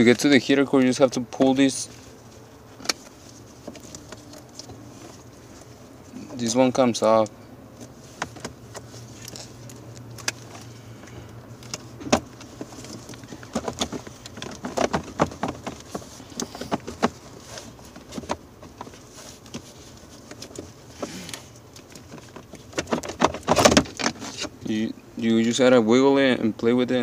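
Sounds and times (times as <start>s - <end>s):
plastic parts clicking and rattling: 8.2s - 24.5s.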